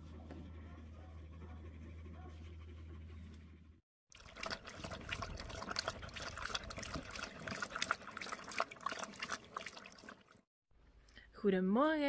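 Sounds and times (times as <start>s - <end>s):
water trickling and splashing: 4.1s - 10.5s.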